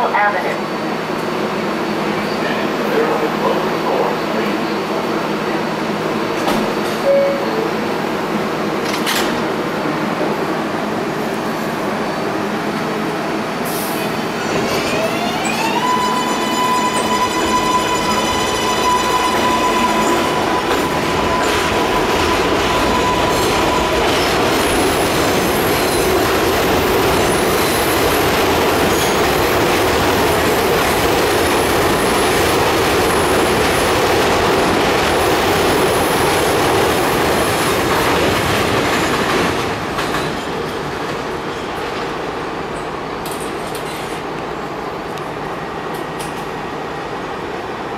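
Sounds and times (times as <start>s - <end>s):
subway train propulsion whine: 0.0s - 47.9s.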